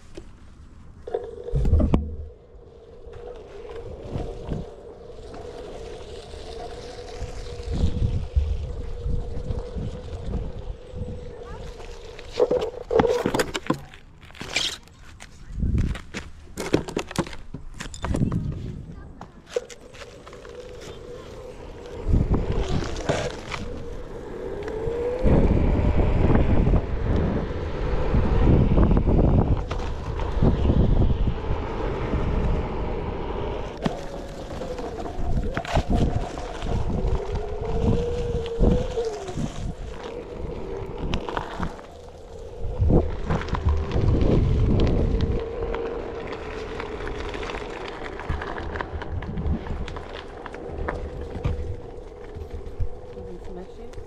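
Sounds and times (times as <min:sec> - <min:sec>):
gravel crunching under tyre: 0:00.0 - 0:54.0
wind buffeting microphone: 0:01.4 - 0:13.0, 0:15.4 - 0:16.3, 0:17.9 - 0:54.0
electric motor whining: 0:20.1 - 0:54.0.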